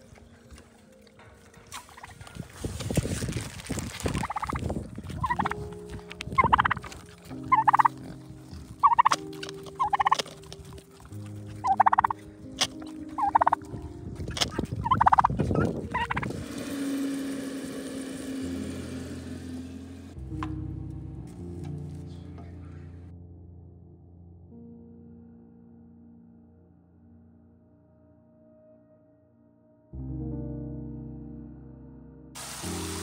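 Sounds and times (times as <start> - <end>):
turkey gobbling: 4.0 - 4.6, 5.2 - 13.7, 14.3 - 16.3.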